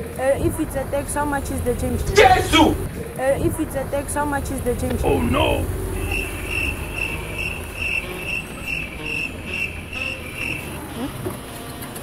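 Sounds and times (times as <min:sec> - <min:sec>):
low steady rumble: 0:00.2 - 0:09.9
high insect-like chirps: 0:06.0 - 0:10.9.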